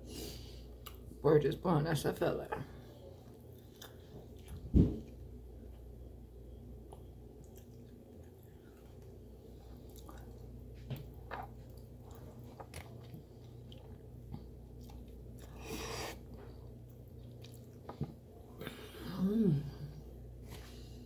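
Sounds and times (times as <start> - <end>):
close-up chewing: 3.1 - 5.9, 6.8 - 18.5.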